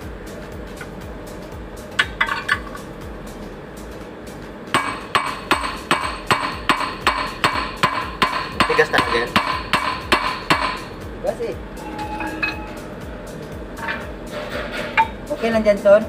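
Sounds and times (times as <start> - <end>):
hammer striking metal: 2.0 - 2.8, 4.7 - 11.1, 11.8 - 13.0, 13.8 - 15.4.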